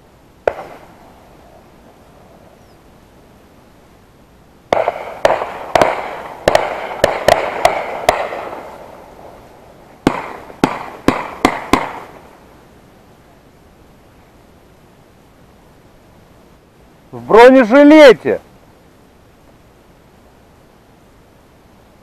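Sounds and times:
shotgun shots echoing: 0:00.5 - 0:00.9, 0:04.7 - 0:09.0, 0:10.0 - 0:12.2.

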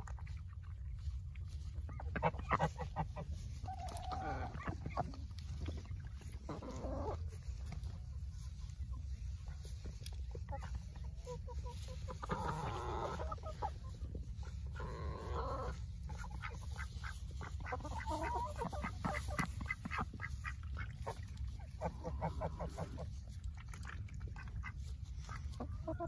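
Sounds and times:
ducks quacking: 0:00.1 - 0:26.0
geese honking: 0:01.6 - 0:08.0, 0:10.5 - 0:23.4.

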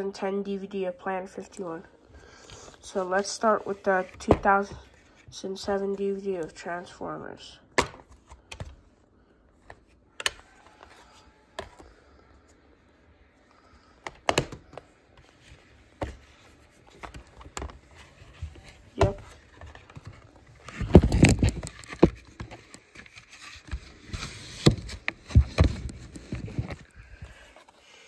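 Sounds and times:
rustling and scraping: 0:15.1 - 0:28.0.

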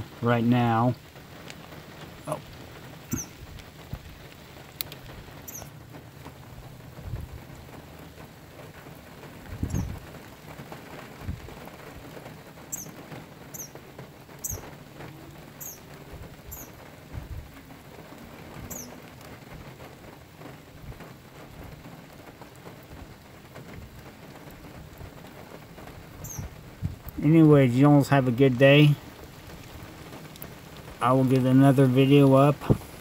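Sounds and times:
steady rain falling: 0:00.0 - 0:33.0
small bird chirping: 0:03.1 - 0:03.4, 0:05.4 - 0:05.7, 0:09.6 - 0:10.0, 0:12.7 - 0:13.8, 0:14.4 - 0:14.7, 0:15.6 - 0:15.9, 0:16.5 - 0:16.8, 0:18.7 - 0:19.0, 0:26.2 - 0:26.6.

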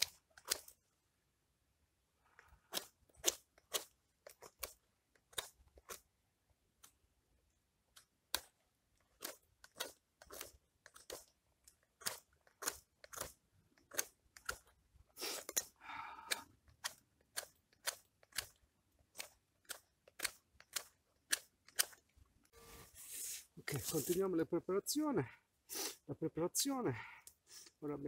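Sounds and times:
knife whittling wood: 0:09.2 - 0:11.3.

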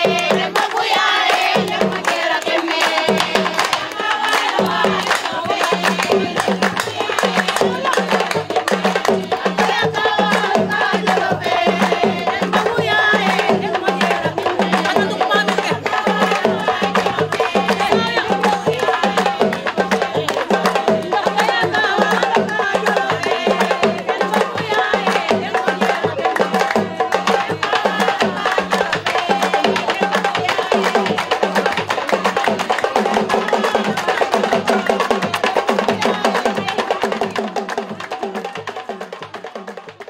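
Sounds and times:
voices singing: 0:00.0 - 0:39.2
drums and clicking percussion: 0:00.0 - 0:40.0.

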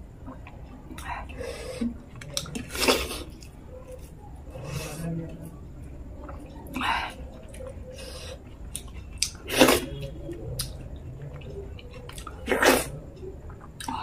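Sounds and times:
wet clicks of fingers eating: 0:02.1 - 0:02.7, 0:08.6 - 0:09.4, 0:10.3 - 0:12.5, 0:13.1 - 0:14.0.

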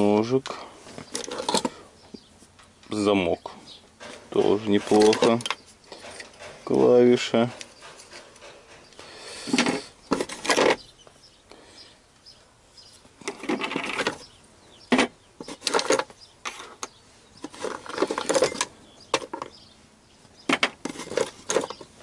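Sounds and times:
metal parts clattering in a box: 0:01.1 - 0:01.8, 0:04.1 - 0:06.7, 0:15.4 - 0:16.6, 0:17.4 - 0:19.5, 0:20.6 - 0:22.0.

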